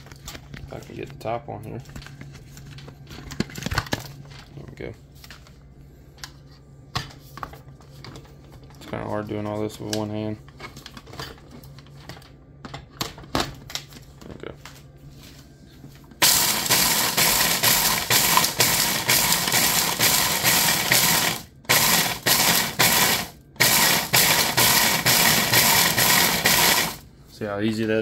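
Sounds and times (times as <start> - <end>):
food processor grinding shells: 16.2 - 27.0.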